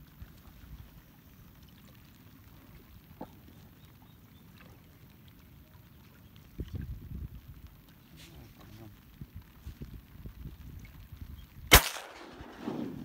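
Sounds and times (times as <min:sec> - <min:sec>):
low rumble of wind: 0:00.0 - 0:13.0.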